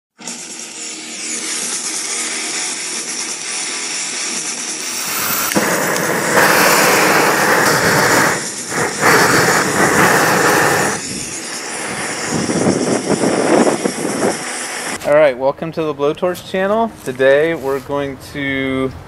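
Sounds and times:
torch flame roaring: 0:04.2 - 0:15.1.

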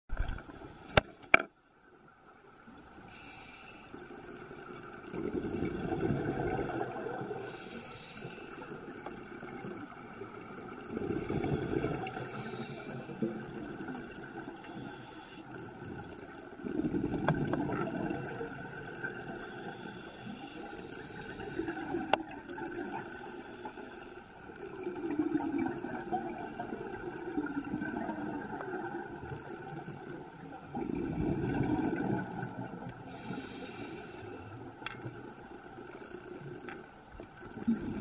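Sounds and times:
bubbles gurgling: 0:05.0 - 0:07.6, 0:09.4 - 0:12.5, 0:15.8 - 0:19.4, 0:24.6 - 0:33.0, 0:37.4 - 0:38.0.

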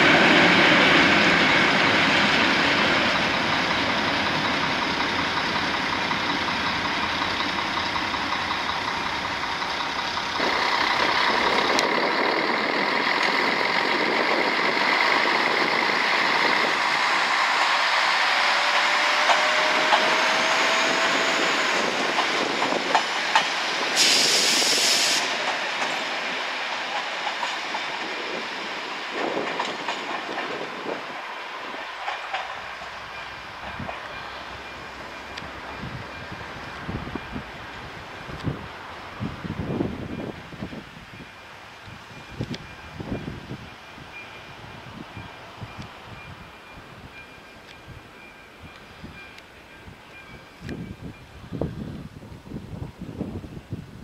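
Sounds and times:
diesel railcar running: 0:00.0 - 0:54.0
wheels clicking over rail joints: 0:00.1 - 0:38.6
short hiss: 0:23.9 - 0:25.4.

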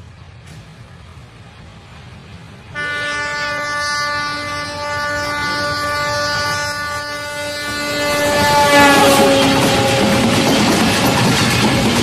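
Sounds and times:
train rumble: 0:00.0 - 0:12.0
locomotive air horn blast: 0:02.8 - 0:10.4.

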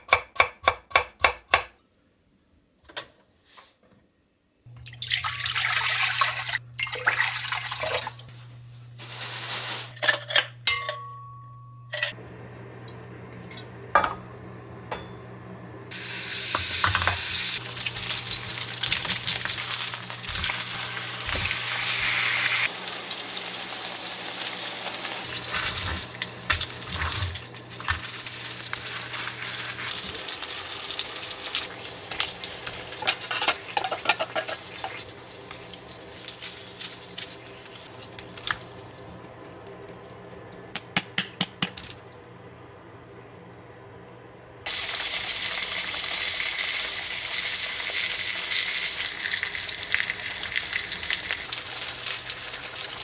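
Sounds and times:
patties sizzling in oil: 0:15.9 - 0:39.2, 0:44.7 - 0:53.0.

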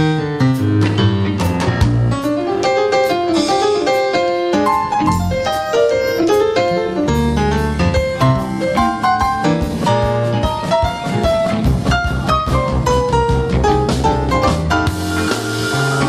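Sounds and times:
keyboard solo: 0:00.0 - 0:11.2, 0:11.8 - 0:16.0
bass: 0:00.0 - 0:16.0
drums: 0:00.0 - 0:16.0.

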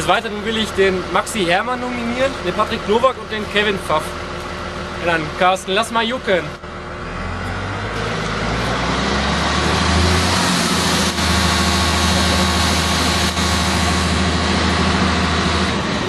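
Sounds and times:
excavator diesel engine revving: 0:00.0 - 0:16.0.

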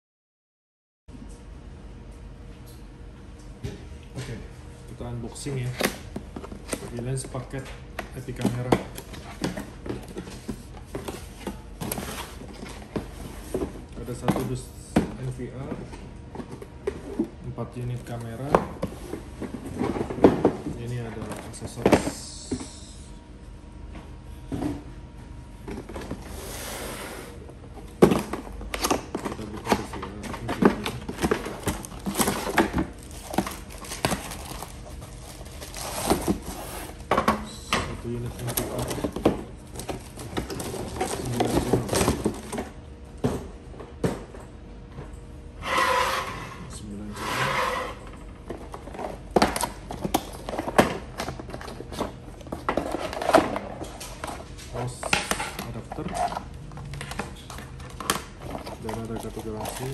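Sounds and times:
plastic and cardboard crinkling: 0:27.8 - 0:37.1, 0:38.0 - 0:42.7, 0:48.4 - 0:59.9.

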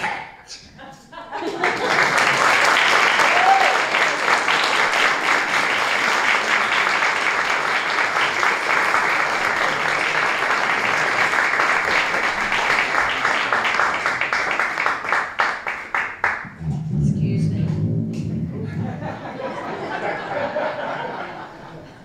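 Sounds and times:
audience applauding: 0:01.4 - 0:16.5.

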